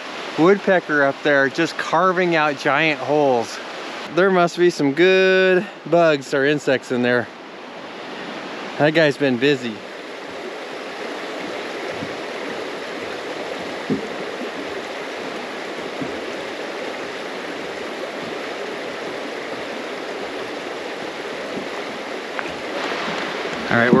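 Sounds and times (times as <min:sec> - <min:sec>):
creek water running over rocks: 0:00.0 - 0:24.0
faint knock: 0:13.9 - 0:14.2.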